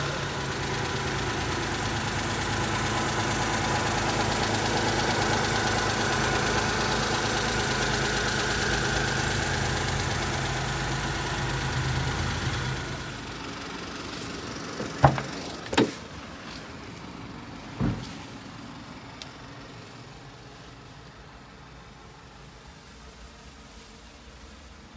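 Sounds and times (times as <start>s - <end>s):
small truck engine idling: 0.0s - 24.9s
sharp clunks: 14.8s - 16.0s.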